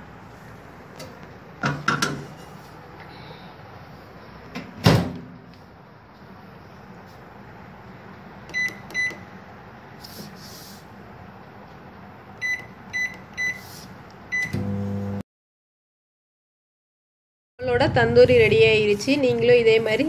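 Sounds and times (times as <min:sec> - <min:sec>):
microwave oven humming: 0:06.6 - 0:09.8, 0:11.2 - 0:15.2
microwave button beeps: 0:08.5 - 0:09.3, 0:12.4 - 0:13.6, 0:14.3 - 0:14.8.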